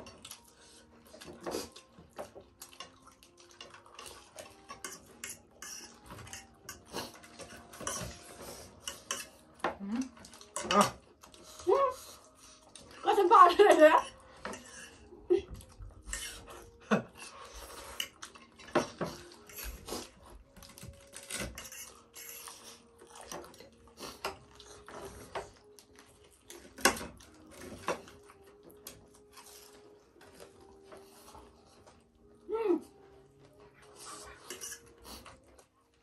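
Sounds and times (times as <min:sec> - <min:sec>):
forks clinking on plates: 0:02.7 - 0:11.0, 0:34.2 - 0:35.0.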